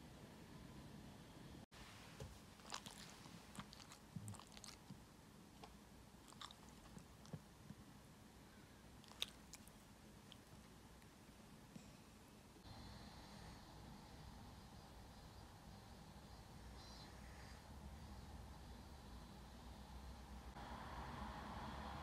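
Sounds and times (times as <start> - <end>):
dog mouth clicks and lip smacks: 9.0 - 10.6.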